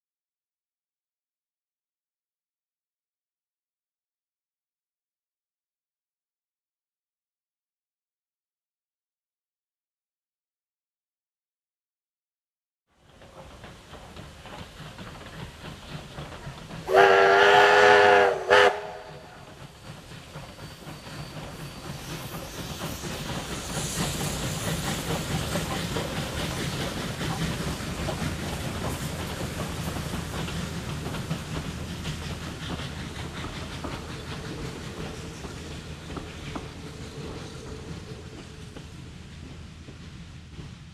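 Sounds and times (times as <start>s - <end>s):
faint train rumble: 12.9s - 40.9s
steam hiss: 13.0s - 40.9s
steam locomotive whistle: 16.8s - 19.6s.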